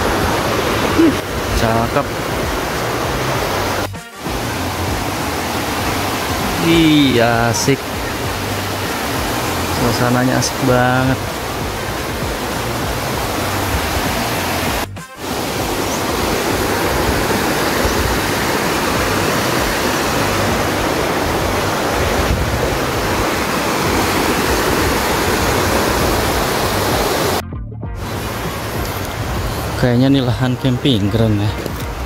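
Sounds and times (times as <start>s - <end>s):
wind buffeting microphone: 0.0s - 6.6s, 11.2s - 27.4s, 28.0s - 29.8s.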